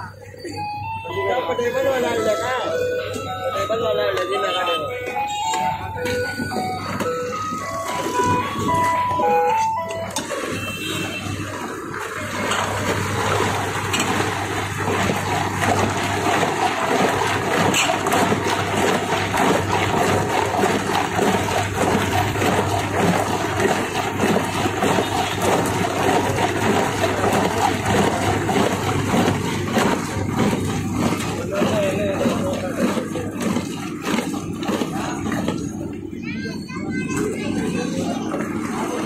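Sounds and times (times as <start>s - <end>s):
liquid running and splashing: 10.1s - 39.0s.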